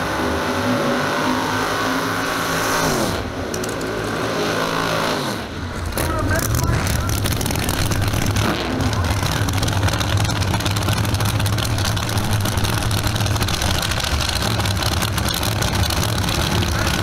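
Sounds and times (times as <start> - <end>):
engines idling roughly: 3.4 - 17.0.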